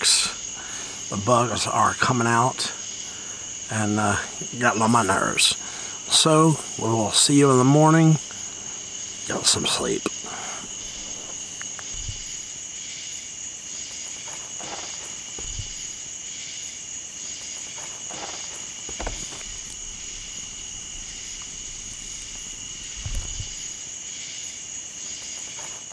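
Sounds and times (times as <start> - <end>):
campfire crackling: 0.0 - 25.9
night insects droning: 0.0 - 25.9
low thumps: 10.1 - 12.8, 15.0 - 16.1, 18.6 - 24.0.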